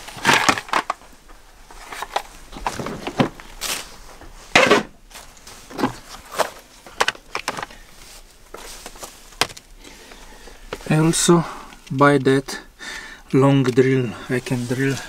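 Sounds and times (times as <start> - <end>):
plastic tool case opening: 0.0 - 1.0, 1.8 - 3.8, 4.5 - 5.0, 5.7 - 7.8.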